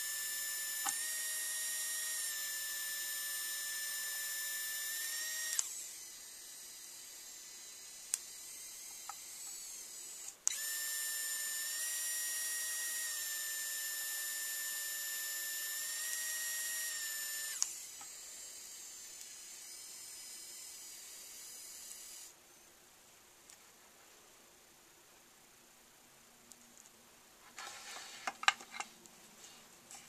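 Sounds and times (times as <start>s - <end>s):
motor whine: 0.0s - 22.4s
pen steady whir: 0.0s - 22.4s
motor click: 15.8s - 18.2s.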